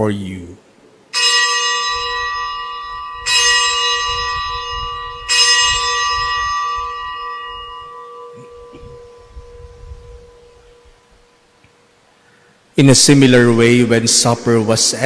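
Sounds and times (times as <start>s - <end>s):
bell ringing: 1.2s - 11.0s.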